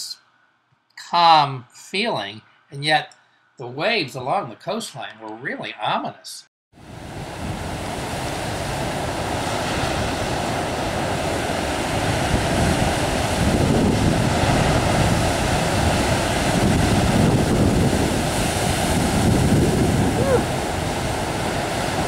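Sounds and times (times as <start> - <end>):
heavy surf on rocky shore: 6.8 - 22.0.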